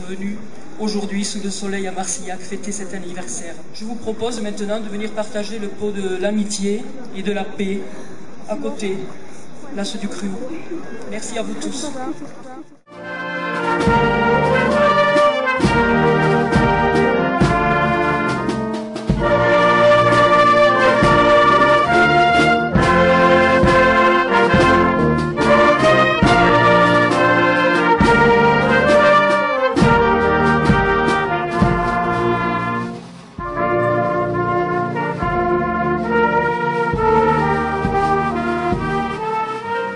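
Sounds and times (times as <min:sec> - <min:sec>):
brass music: 0:12.8 - 0:39.9
percussive beats: 0:13.6 - 0:39.4.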